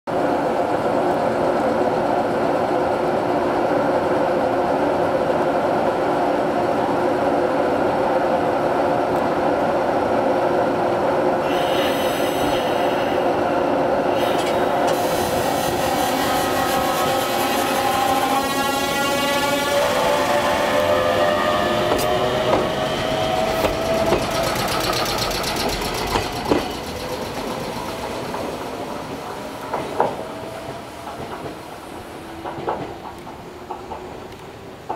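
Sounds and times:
train electrical equipment humming: 0:00.1 - 0:34.9
high hiss: 0:11.4 - 0:17.4
inverter rising tones: 0:14.6 - 0:28.1.

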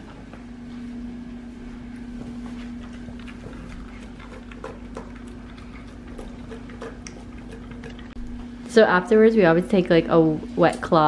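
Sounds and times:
steady low hum: 0:00.0 - 0:11.0
dog chewing and smacking: 0:02.0 - 0:08.2.

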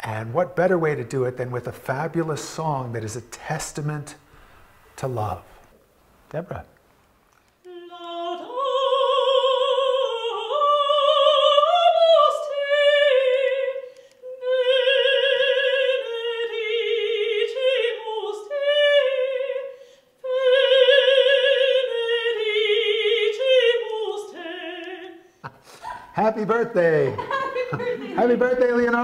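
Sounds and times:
woman singing operatically: 0:07.7 - 0:25.2, 0:27.2 - 0:28.4.

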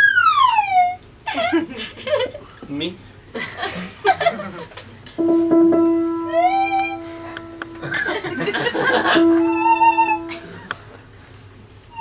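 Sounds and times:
theremin upward-gliding note: 0:05.2 - 0:07.8, 0:09.0 - 0:10.6
theremin held note: 0:05.2 - 0:07.9, 0:09.0 - 0:10.7.

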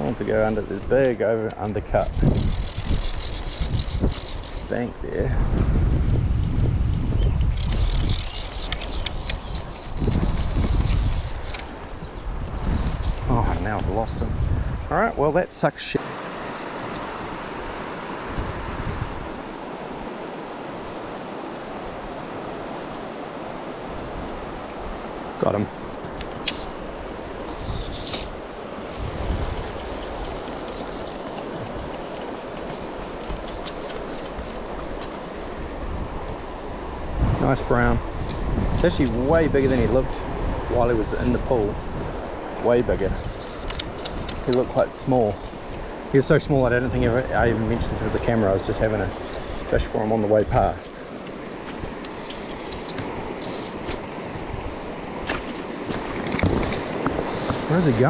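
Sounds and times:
wind buffeting microphone: 0:00.0 - 0:15.4, 0:16.0 - 0:58.0
faint clicks: 0:07.2 - 0:11.8
river water rushing over rocks: 0:16.0 - 0:27.5.

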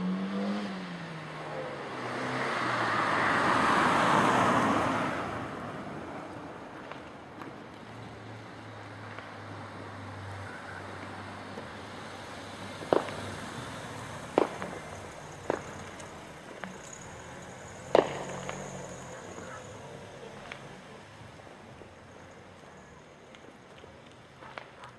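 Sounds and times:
distant fireworks bangs: 0:12.8 - 0:20.8.

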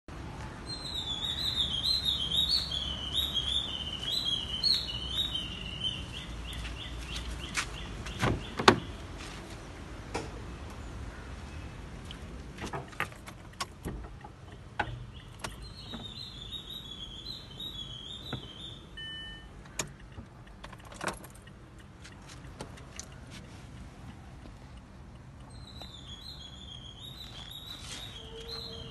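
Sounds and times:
bird chirping: 0:00.6 - 0:09.0, 0:14.8 - 0:20.2, 0:25.3 - 0:28.9.

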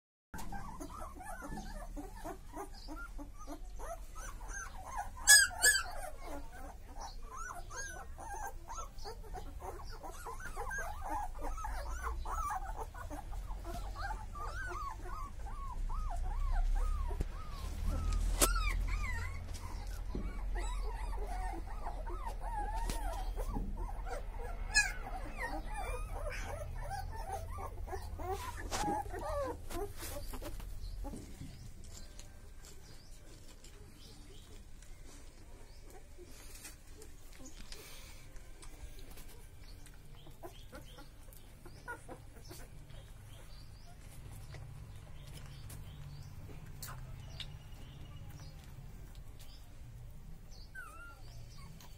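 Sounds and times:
puppies whimpering and squeaking: 0:00.4 - 0:51.9
puppy squealing sharply: 0:05.3 - 0:06.0.

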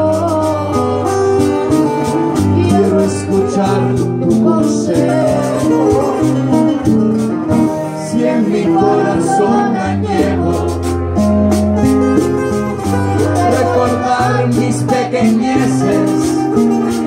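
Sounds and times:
guitar accompaniment: 0:00.0 - 0:17.0
light rhythmic percussion: 0:00.0 - 0:17.0
man and boy singing: 0:02.4 - 0:06.4, 0:08.0 - 0:10.8, 0:13.4 - 0:16.4.

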